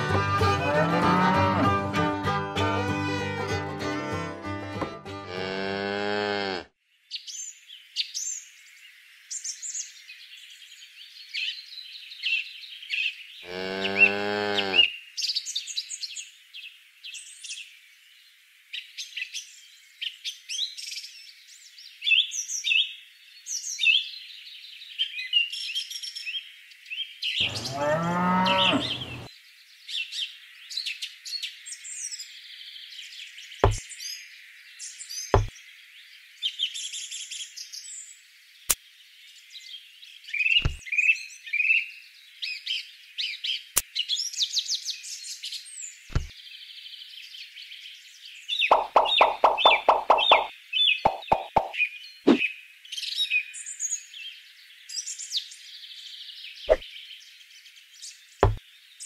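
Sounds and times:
cattle mooing: 0:00.4 - 0:01.9, 0:05.2 - 0:06.7, 0:13.4 - 0:14.9, 0:27.4 - 0:29.3
sharp knock: 0:40.6 - 0:40.8, 0:46.1 - 0:46.3, 0:48.7 - 0:50.5, 0:51.1 - 0:52.4
high-pitched chirping: 0:48.7 - 0:50.5, 0:51.1 - 0:52.4.

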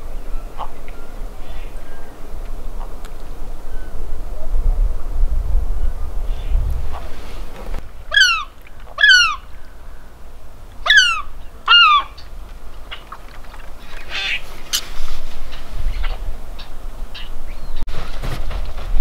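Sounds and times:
gulls crying: 0:00.0 - 0:14.9.

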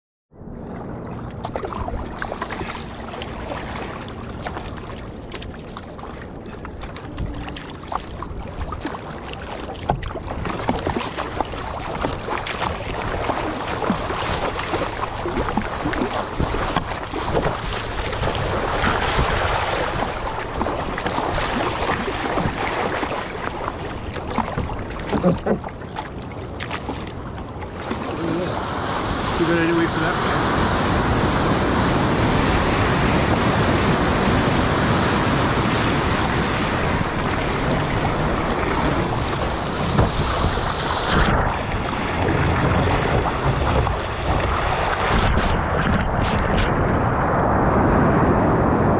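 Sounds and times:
water rushing along hull: 0:00.3 - 0:48.9
paddle blades splashing: 0:00.5 - 0:46.8
wind buffeting microphone: 0:27.8 - 0:48.9.

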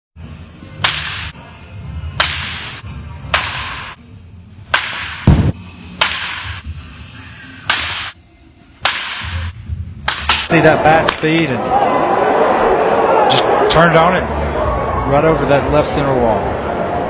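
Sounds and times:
baseball bat hitting balls: 0:00.6 - 0:04.0, 0:04.6 - 0:11.5
heavy low thump: 0:05.2 - 0:05.6.

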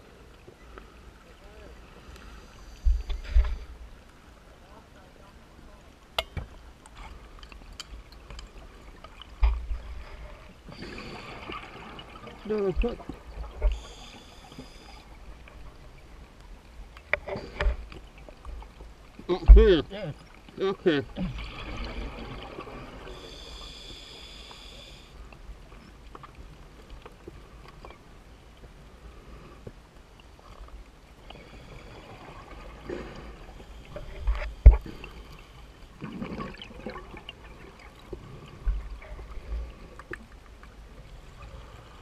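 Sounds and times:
underwater bubbles gurgling: 0:06.4 - 0:27.9, 0:30.4 - 0:42.0.

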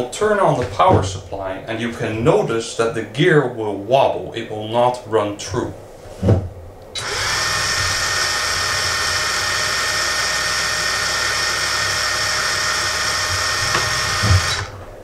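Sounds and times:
low thump: 0:06.2 - 0:06.6
electric motor high whine: 0:07.0 - 0:15.0.

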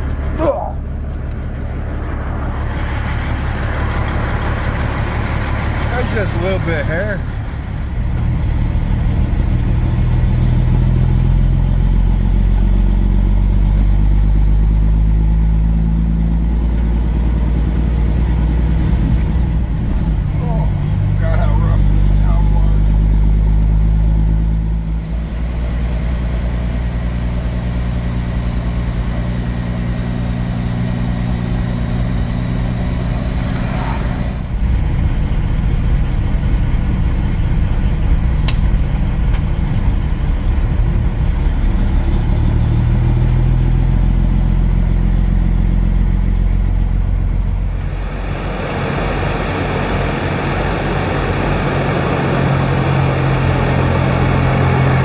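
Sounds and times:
truck diesel engine drone: 0:00.0 - 0:55.0.

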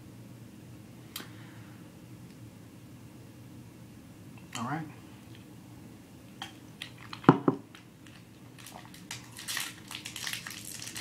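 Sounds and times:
candy wrapper crinkling: 0:06.8 - 0:11.0.

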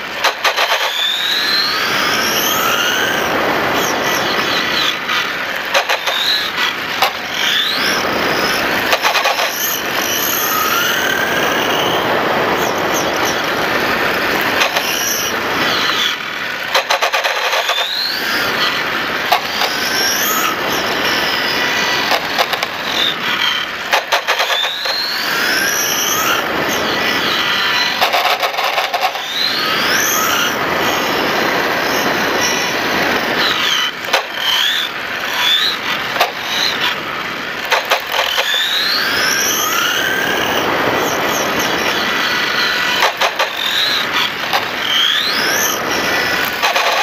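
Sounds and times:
model motorcycle motor whine: 0:00.0 - 0:47.0
wind rush on microphone: 0:07.4 - 0:16.0, 0:29.5 - 0:33.7, 0:39.0 - 0:43.1.

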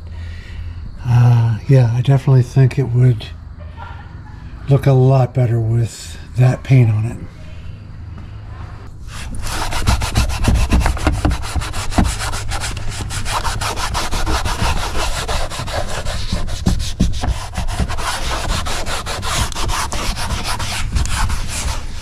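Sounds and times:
scouring pad scratching vinyl: 0:09.1 - 0:22.0.

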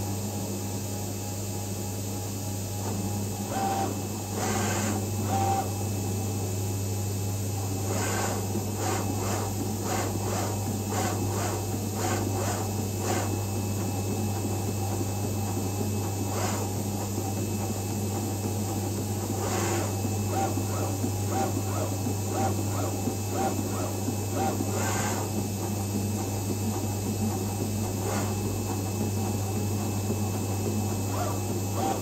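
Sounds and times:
cutting plotter tool head strokes: 0:03.4 - 0:05.8, 0:07.7 - 0:13.4, 0:16.2 - 0:16.8, 0:19.2 - 0:25.4, 0:28.0 - 0:28.4, 0:30.9 - 0:32.0.

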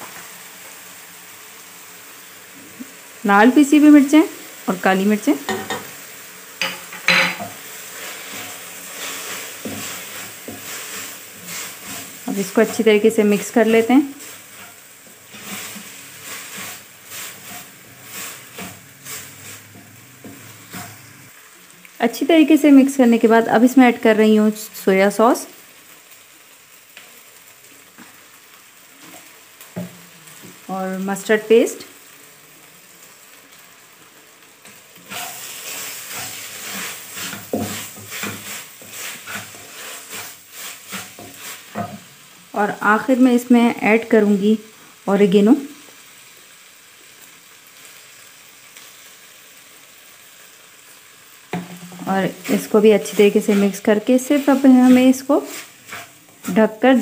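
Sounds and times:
mince sizzling: 0:00.0 - 0:57.0
spatula scraping a wok: 0:05.1 - 0:21.3, 0:34.6 - 0:42.4, 0:50.9 - 0:57.0.

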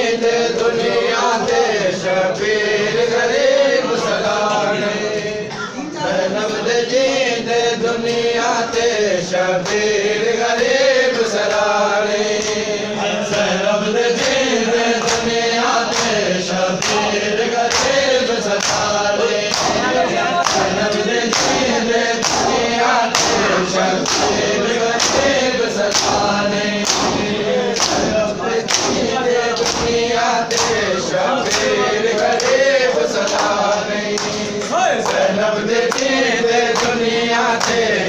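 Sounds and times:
men chanting in unison: 0:00.0 - 0:38.0
hands beating on chests: 0:18.6 - 0:30.8.

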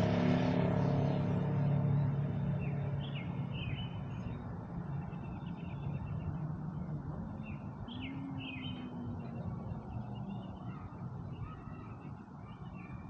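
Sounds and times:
small birds chirping: 0:01.0 - 0:13.0.

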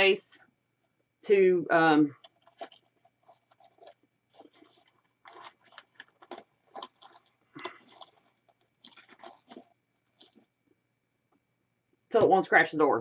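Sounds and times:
rustling of artificial branches: 0:02.1 - 0:10.5.

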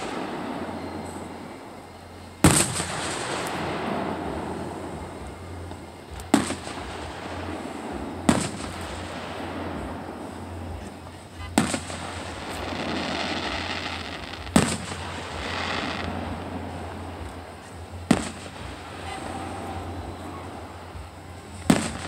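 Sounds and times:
steady background noise: 0:00.0 - 0:22.0
firework shells bursting: 0:02.3 - 0:10.8, 0:11.5 - 0:19.2, 0:21.5 - 0:22.0.

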